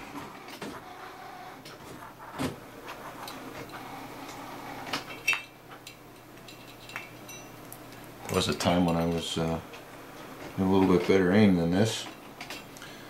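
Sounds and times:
small clicks and knocks: 12.0 - 12.9.

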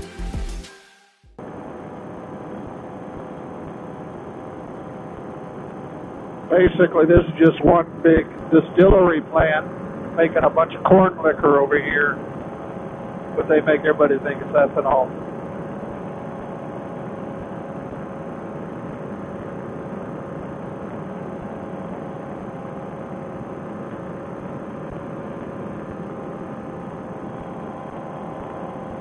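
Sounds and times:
engine and propeller droning: 1.4 - 29.0.

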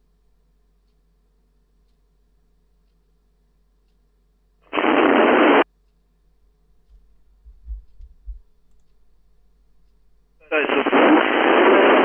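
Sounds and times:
radio static burst: 4.7 - 5.6, 10.4 - 12.0
faint low thumps: 6.8 - 9.3.

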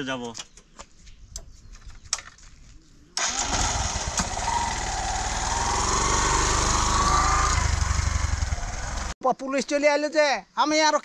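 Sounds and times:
motorcycle engine running: 3.2 - 9.2.

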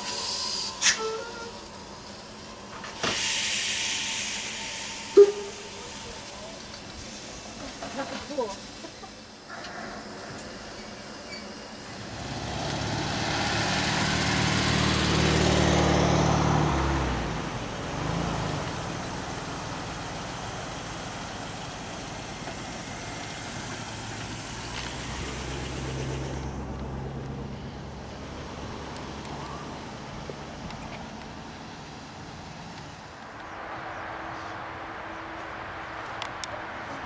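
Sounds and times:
steam locomotive hissing steam: 0.0 - 26.7
pickup truck driving past: 11.6 - 37.0.

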